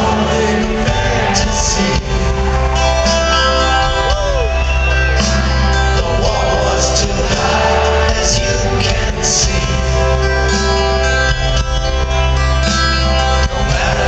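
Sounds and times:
person singing: 0:00.0 - 0:04.8, 0:05.6 - 0:10.2, 0:13.4 - 0:14.0
guitar: 0:00.0 - 0:14.0
live rock music: 0:00.0 - 0:14.0.

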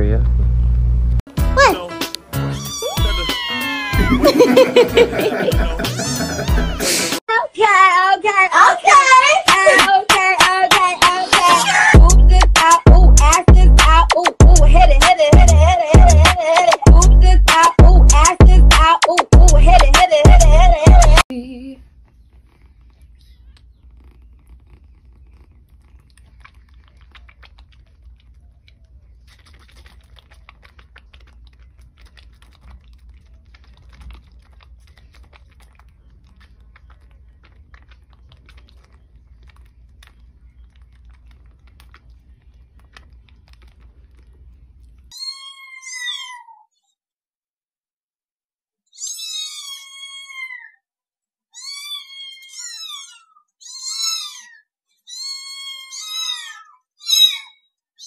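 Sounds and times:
cat meowing loudly: 0:02.4 - 0:04.2, 0:45.1 - 0:46.7, 0:48.9 - 0:50.8, 0:51.5 - 0:57.6
kitten sucking clicks: 0:22.0 - 0:45.1
kitten purring: 0:22.1 - 0:28.6.

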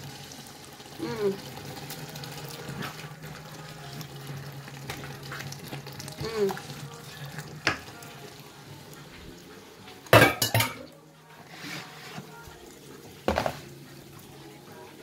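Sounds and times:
soup sizzling in a pot: 0:00.0 - 0:14.9
utensil clattering against cookware: 0:10.1 - 0:10.9.

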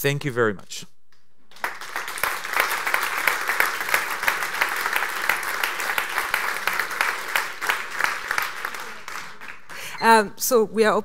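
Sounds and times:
audience applauding: 0:01.5 - 0:10.0.

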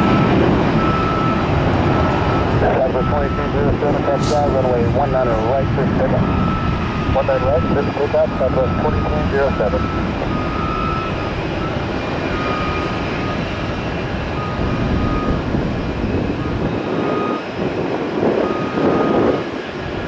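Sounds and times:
jet engine rumble: 0:00.0 - 0:20.0.

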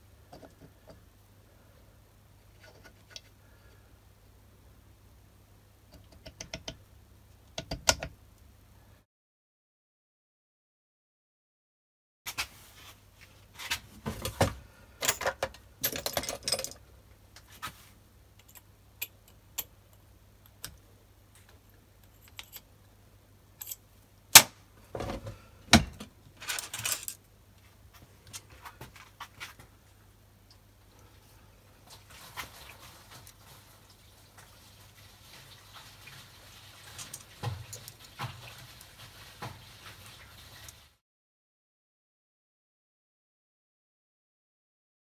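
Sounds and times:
faint steady hum: 0:00.0 - 0:09.0, 0:12.7 - 0:40.8
small metal tools clicking and rattling: 0:15.0 - 0:16.9, 0:18.4 - 0:20.8, 0:22.0 - 0:22.7, 0:23.6 - 0:23.8, 0:26.4 - 0:27.2.

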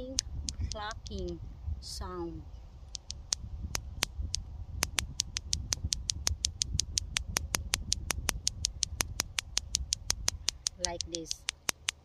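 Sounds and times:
clackers toy clacking: 0:04.9 - 0:12.0.

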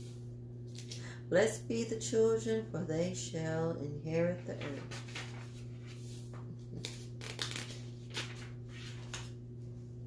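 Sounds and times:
steady low hum: 0:00.0 - 0:10.0
paper rustling: 0:04.4 - 0:09.4.

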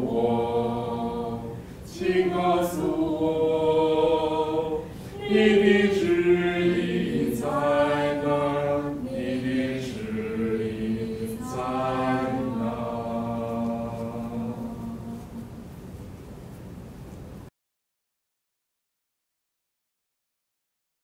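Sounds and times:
congregation singing a hymn: 0:00.0 - 0:15.8.

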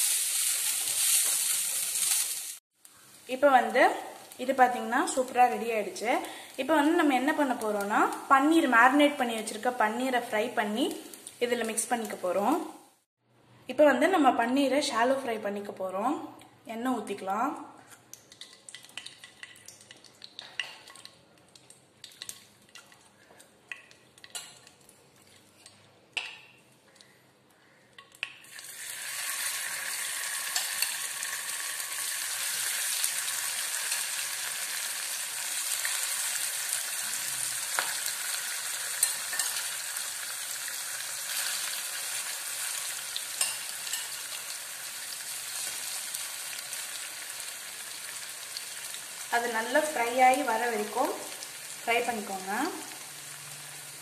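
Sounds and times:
food sizzling in hot oil: 0:00.0 - 0:13.1, 0:28.4 - 0:54.0.

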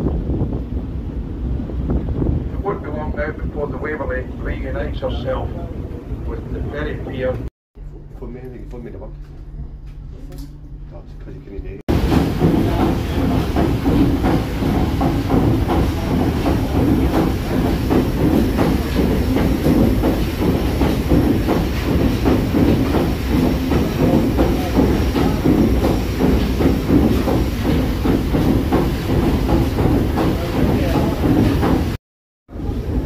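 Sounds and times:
steam engine rhythmic clatter: 0:11.8 - 0:33.0.

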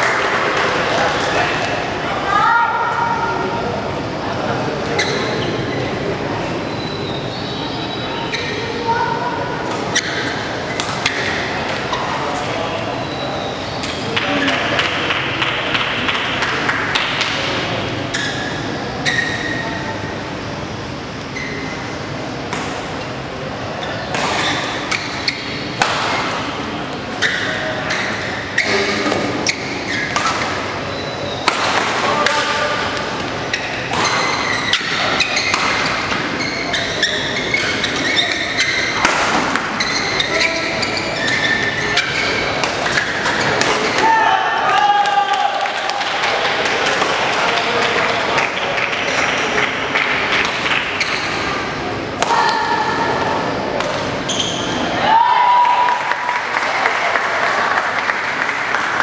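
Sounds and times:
murmur of voices: 0:00.0 - 0:59.0
shoes squeaking on court floor: 0:04.8 - 0:08.8, 0:17.9 - 0:19.8, 0:21.2 - 0:22.0, 0:22.8 - 0:31.6, 0:32.4 - 0:43.6, 0:50.9 - 0:52.0, 0:53.4 - 0:55.0
rackets hitting shuttlecocks: 0:09.7 - 0:12.5, 0:24.0 - 0:26.6, 0:31.4 - 0:36.4, 0:37.8 - 0:40.3, 0:41.9 - 0:44.1.

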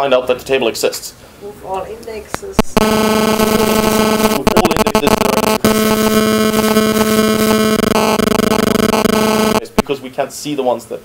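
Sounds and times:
harsh electronic buzz: 0:02.6 - 0:09.9.

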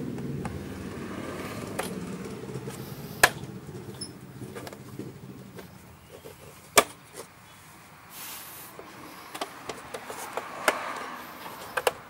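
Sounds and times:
hands rubbing metal parts: 0:02.7 - 0:10.6
brief hiss: 0:08.1 - 0:08.8.

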